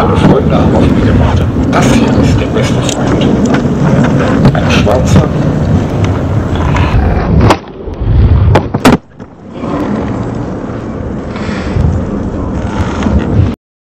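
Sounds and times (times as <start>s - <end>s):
skateboard clack: 0.0s - 11.0s
skateboard wheels rolling on concrete: 0.0s - 13.6s.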